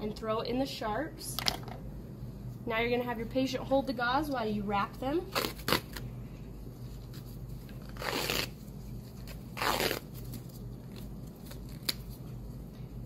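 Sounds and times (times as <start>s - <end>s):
steady low hum: 0.0s - 13.0s
bandage peeling off roll: 7.0s - 12.4s.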